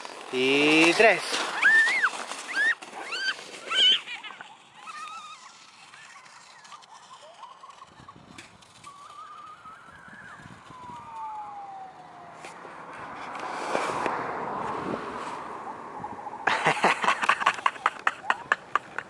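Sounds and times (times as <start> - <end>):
footsteps crunching in snow: 0.0 - 4.9.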